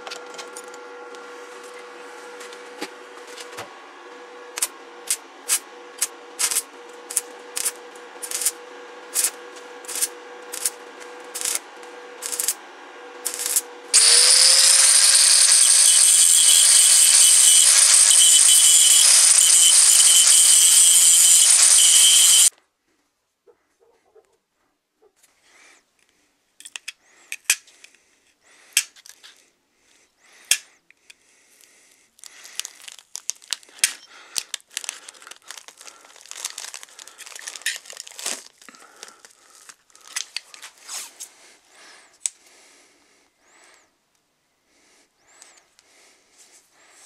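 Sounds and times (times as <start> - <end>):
paper crinkling: 32.2 - 41.2.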